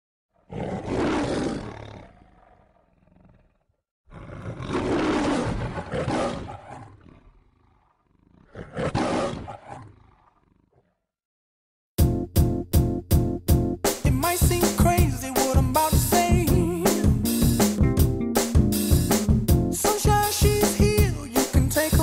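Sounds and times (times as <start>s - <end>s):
lion roaring: 0.3s - 11.0s.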